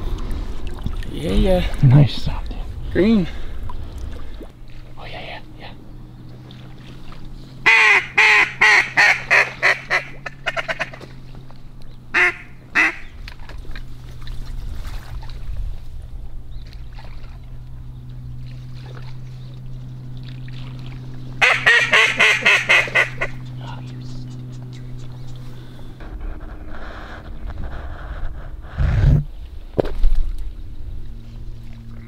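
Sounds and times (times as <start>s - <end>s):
steady low hum: 0.0s - 32.0s
duck quacking: 7.6s - 11.0s, 12.1s - 13.1s, 21.4s - 23.4s.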